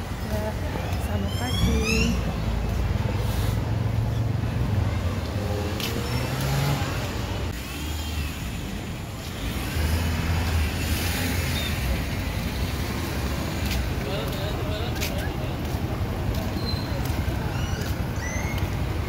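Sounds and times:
cars and motorcycles passing: 0:00.0 - 0:19.0.

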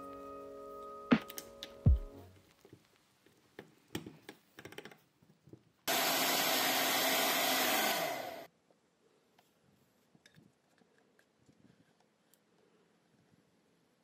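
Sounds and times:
hair dryer running: 0:05.9 - 0:08.5.

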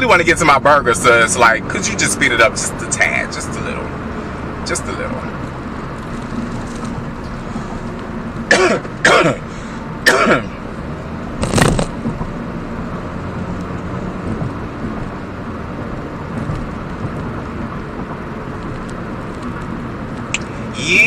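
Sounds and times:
car cabin road and engine noise: 0:00.0 - 0:21.0
person clearing throat: 0:08.5 - 0:09.5, 0:10.1 - 0:10.6.

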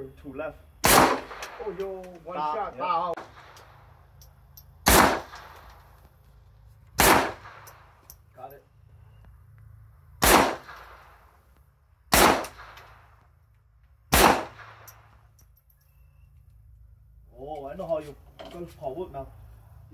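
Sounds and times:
gunshots with echo: 0:04.9 - 0:05.6, 0:07.0 - 0:07.6, 0:10.2 - 0:11.1, 0:14.1 - 0:14.9.

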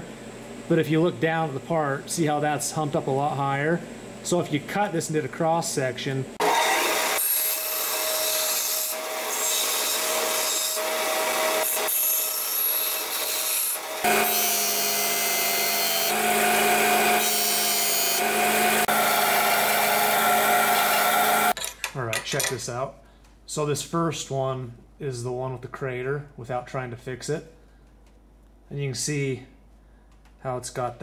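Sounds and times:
bandsaw cutting aluminum: 0:06.4 - 0:21.6
sander grinding aluminum: 0:06.4 - 0:21.6.

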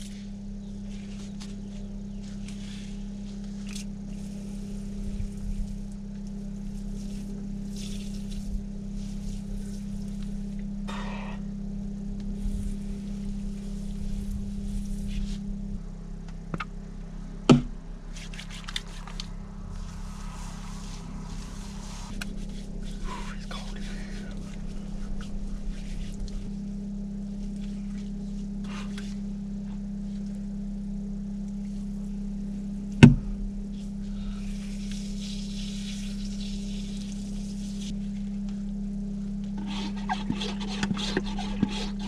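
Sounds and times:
low hum: 0:00.0 - 0:42.0
shower water spraying: 0:34.4 - 0:37.9.

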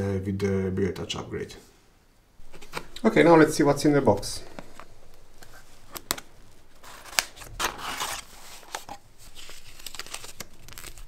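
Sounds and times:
paper contents rustling: 0:02.4 - 0:11.0
cardboard box being opened: 0:06.8 - 0:11.0.

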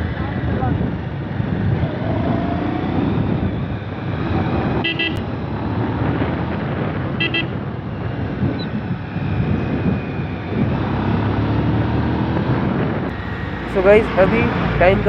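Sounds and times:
motorcycle engine running: 0:00.0 - 0:15.0
wind and road noise: 0:00.0 - 0:15.0
horn double beep: 0:04.8 - 0:05.2, 0:07.2 - 0:07.5.

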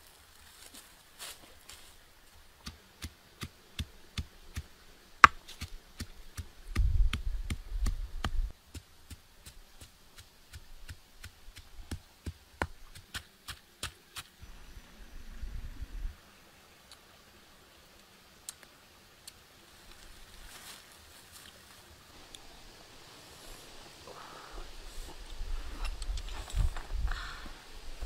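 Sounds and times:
low rumble: 0:14.4 - 0:16.2.

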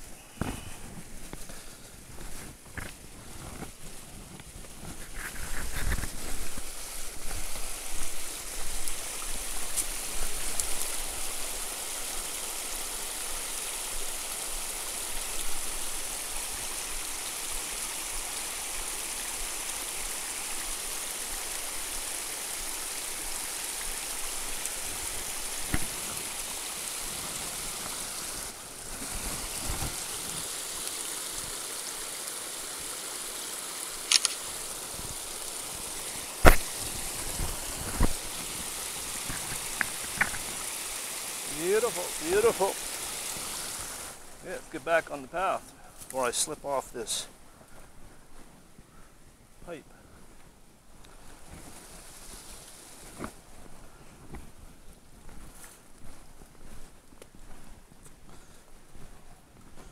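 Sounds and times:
rustling and footsteps: 0:00.0 - 0:12.0, 0:23.2 - 0:31.6, 0:34.0 - 0:44.7, 0:47.2 - 0:49.0, 0:50.1 - 0:59.9
creek babbling over rocks: 0:04.6 - 0:47.3.

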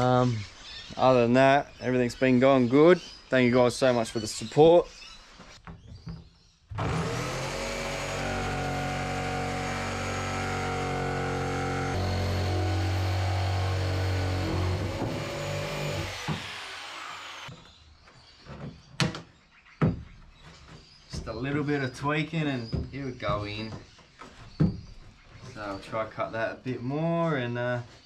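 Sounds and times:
jigsaw cutting: 0:06.8 - 0:17.5.

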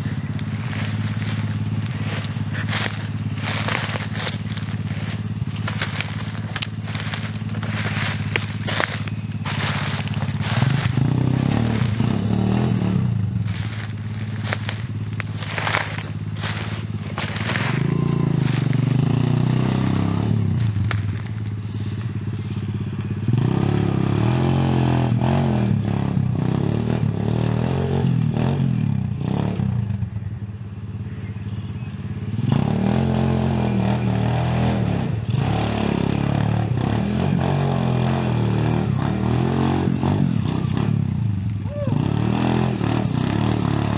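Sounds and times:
pit bike engine revving: 0:00.0 - 0:43.9
sharp crackles and knocks: 0:00.3 - 0:12.1, 0:13.4 - 0:18.9, 0:20.5 - 0:22.1.

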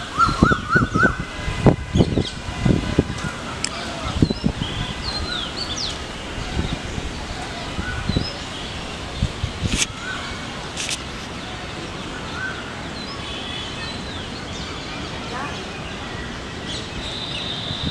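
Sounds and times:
outdoor background hiss: 0:00.0 - 0:17.9.

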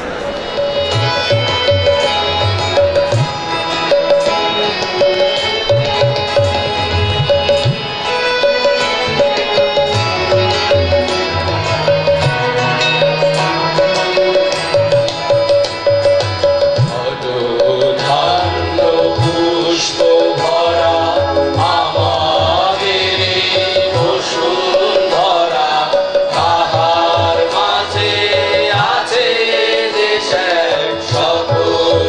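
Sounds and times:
harmonium: 0:00.0 - 0:32.0
tabla strokes: 0:00.0 - 0:32.0
mixed choir singing: 0:16.9 - 0:32.0.

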